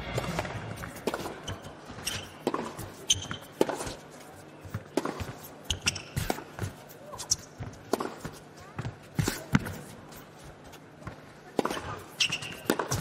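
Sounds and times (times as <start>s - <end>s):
tennis ball struck by rackets: 0.0s - 3.9s, 4.7s - 6.5s, 11.6s - 13.0s
tennis ball bouncing on court: 0.1s - 4.0s, 4.6s - 6.8s, 7.4s - 9.9s, 11.0s - 13.0s.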